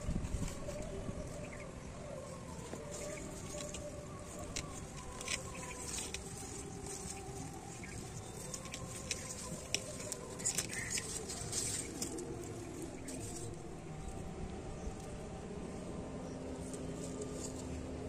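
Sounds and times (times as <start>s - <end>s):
leaves rustling: 0.0s - 18.0s
hands crumbling dry soil: 2.6s - 13.7s.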